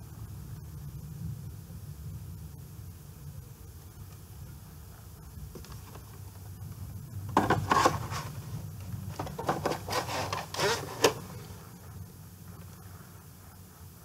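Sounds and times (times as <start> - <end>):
plastic box clacks: 7.3 - 8.4, 9.1 - 11.5
tape box rubbing and scraping: 7.3 - 11.6.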